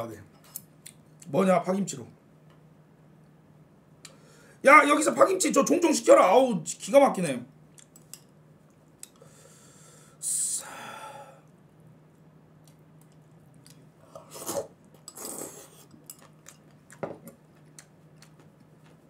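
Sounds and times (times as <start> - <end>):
breaths: 4.1 - 4.6, 9.2 - 11.5.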